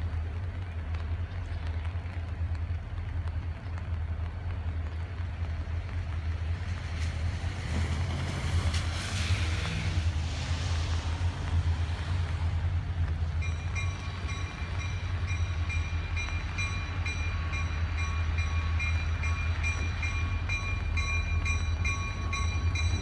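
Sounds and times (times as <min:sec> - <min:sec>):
diesel locomotive engine rumble: 0:00.0 - 0:23.0
train hiss: 0:07.8 - 0:11.6.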